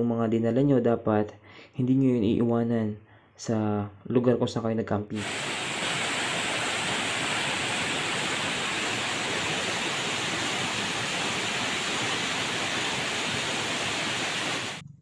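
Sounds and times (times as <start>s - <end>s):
falling water rushing: 5.2s - 14.8s.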